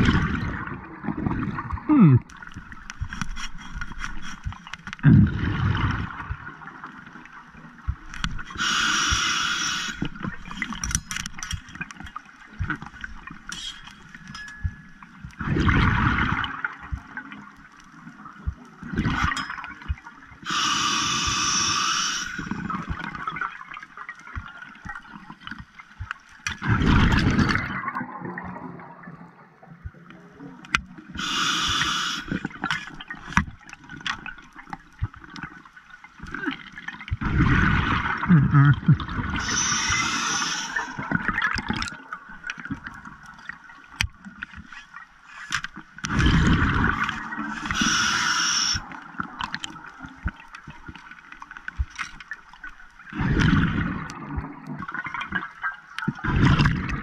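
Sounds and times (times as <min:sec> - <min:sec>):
scuba regulator breathing: 0:08.5 - 0:10.2, 0:20.4 - 0:22.6, 0:31.2 - 0:32.6, 0:39.4 - 0:41.1, 0:47.1 - 0:48.9
small clicks and knocks: 0:10.5 - 0:14.9.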